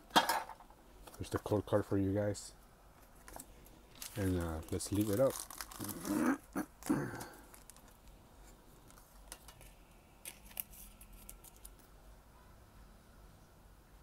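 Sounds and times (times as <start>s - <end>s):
plastic rustling: 3.0s - 11.9s.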